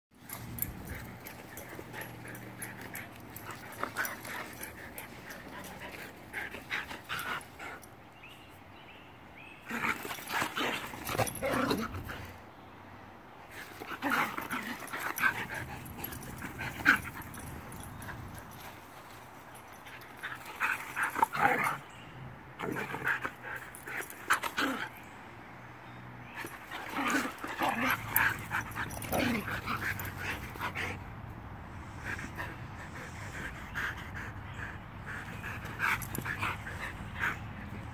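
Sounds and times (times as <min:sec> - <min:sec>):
dogs whining and yipping: 0:32.0 - 0:37.9.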